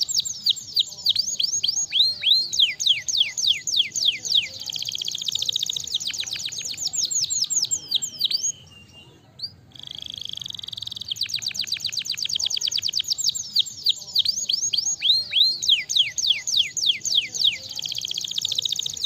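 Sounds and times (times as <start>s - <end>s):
canary singing: 0.0s - 19.0s.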